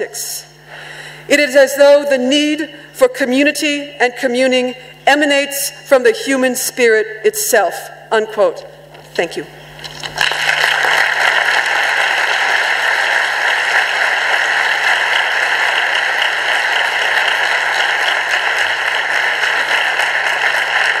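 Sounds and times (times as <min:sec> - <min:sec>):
audience applauding: 0:10.0 - 0:21.0.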